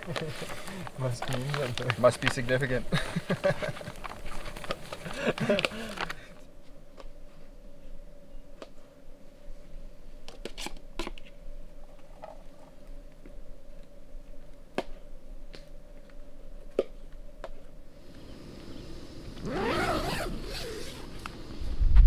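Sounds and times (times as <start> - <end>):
campfire crackling: 0.0 - 7.1, 17.4 - 21.6.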